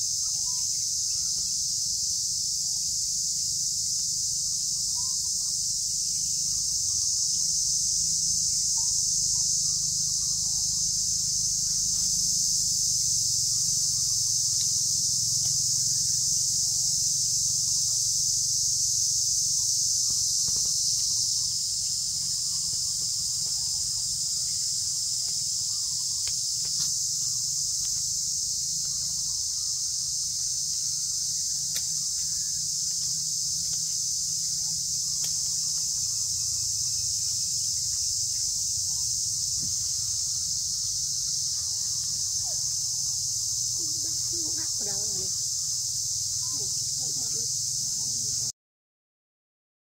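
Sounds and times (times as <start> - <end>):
high-pitched insect chorus: 0.0 - 48.5.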